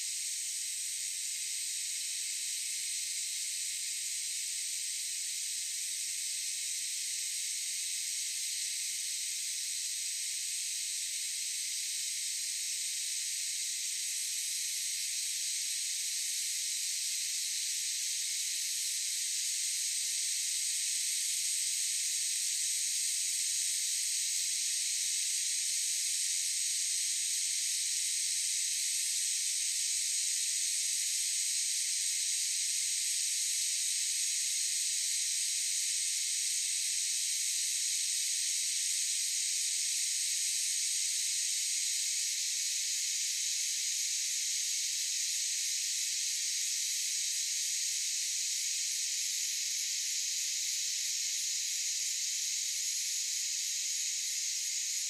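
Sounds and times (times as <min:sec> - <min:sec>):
cicadas buzzing: 0:41.1 - 0:55.0.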